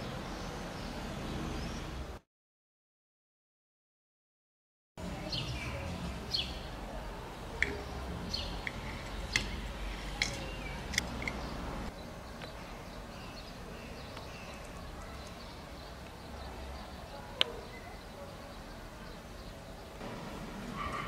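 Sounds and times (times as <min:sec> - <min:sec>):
birds chirping: 0:05.0 - 0:21.0.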